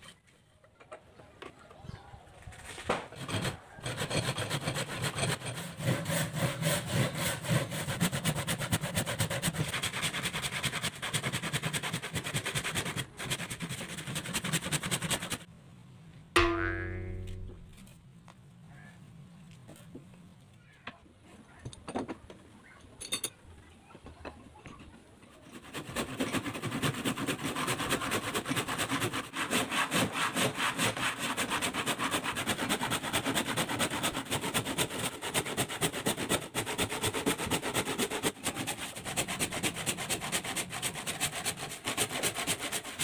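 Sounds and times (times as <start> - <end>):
hand saw cutting wood: 2.9 - 15.5, 25.4 - 43.0.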